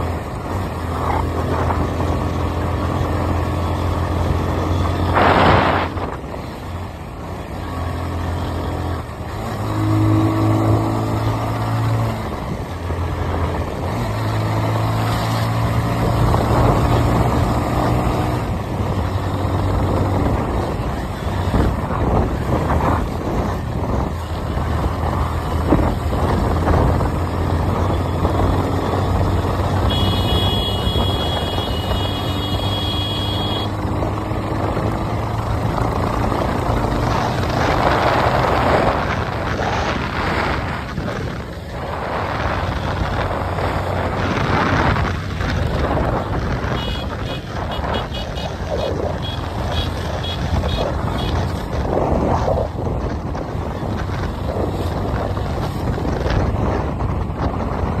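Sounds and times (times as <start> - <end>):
motorcycle engine running: 12.2 - 58.0.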